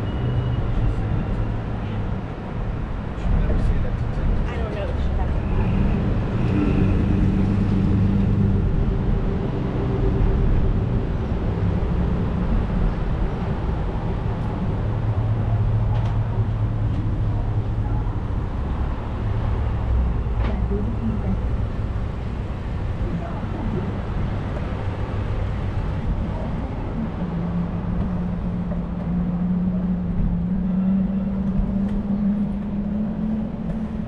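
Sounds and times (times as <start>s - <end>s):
traffic engines rumbling: 0.0s - 34.0s.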